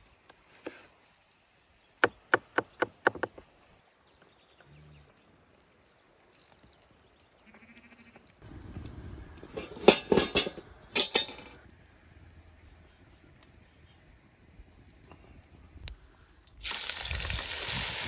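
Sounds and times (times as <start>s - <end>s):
sheep bleating: 7.4s - 8.2s.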